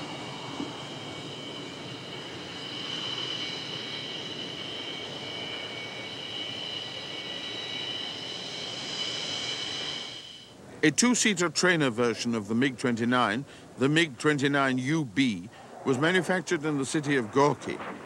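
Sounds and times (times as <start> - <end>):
jet engine whining: 0.0 - 11.7.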